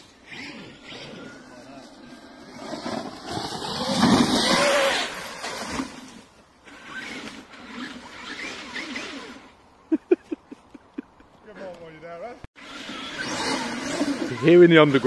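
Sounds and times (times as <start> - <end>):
rc truck motor whine: 0.0 - 5.4, 6.6 - 9.5, 12.6 - 15.0
tyres churning sand: 11.5 - 15.0.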